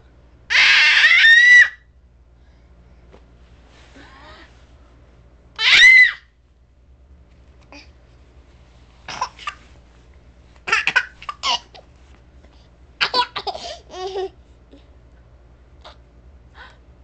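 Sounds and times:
baby laughing: 0:10.6 - 0:11.9, 0:13.0 - 0:14.4.

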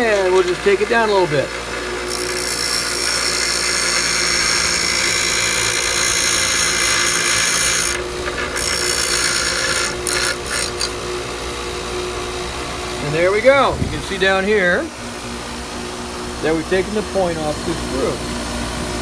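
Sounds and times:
grinder motor hum: 0:00.0 - 0:19.0
grinding wheel hiss on metal: 0:02.1 - 0:11.0.

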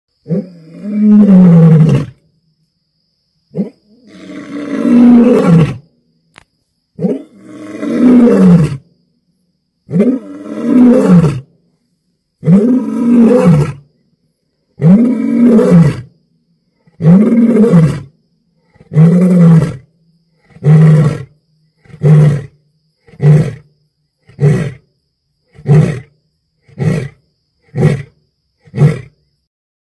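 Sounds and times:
lion roaring: 0:00.3 - 0:02.2, 0:03.6 - 0:05.8, 0:07.0 - 0:08.8, 0:09.9 - 0:11.5, 0:12.4 - 0:13.8, 0:14.8 - 0:16.1, 0:16.8 - 0:19.9
lion grunting roars: 0:07.0 - 0:08.8, 0:16.8 - 0:19.9.

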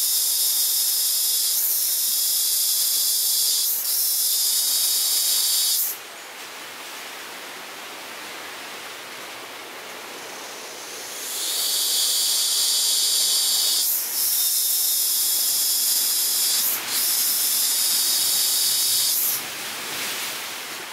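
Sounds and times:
high-pitched buzzing animal call: 0:00.2 - 0:05.9, 0:11.1 - 0:19.4
sea surf: 0:04.7 - 0:20.9.

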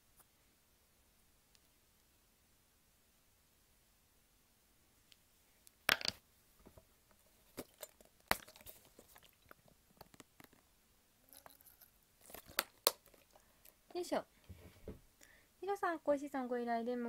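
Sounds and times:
rustling: 0:06.6 - 0:10.7
sharp clicks and crunching: 0:11.4 - 0:13.4.

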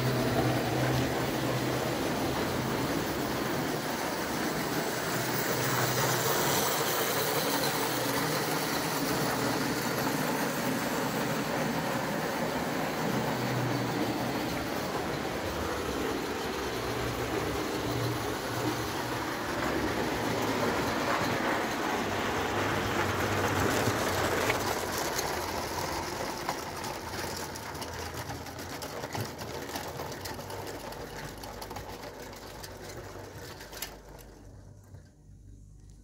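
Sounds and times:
toy train mechanism whirring: 0:00.0 - 0:35.4
wheels rattling on rails: 0:00.0 - 0:35.7.

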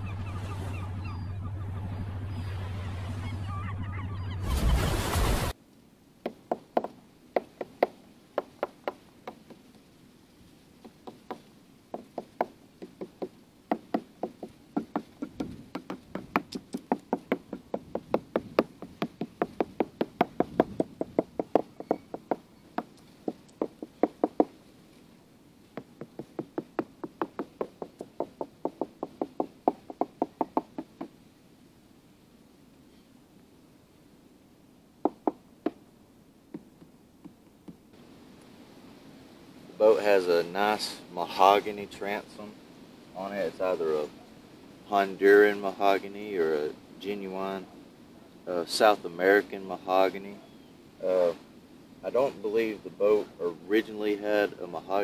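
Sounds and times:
hammer tapping wooden planks: 0:06.2 - 0:09.7, 0:10.8 - 0:24.6, 0:25.7 - 0:31.2, 0:35.0 - 0:35.8, 0:36.5 - 0:37.8.

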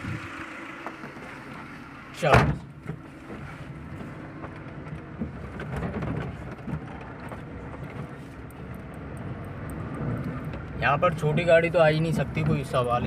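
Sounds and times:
van engine running: 0:00.0 - 0:13.0
body rattles and knocks: 0:02.4 - 0:08.4.

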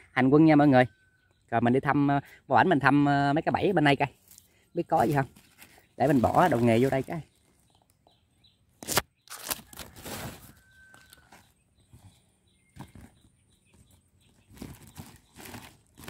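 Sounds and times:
rustling and crinkling of gear: 0:04.2 - 0:08.0, 0:08.8 - 0:16.0.

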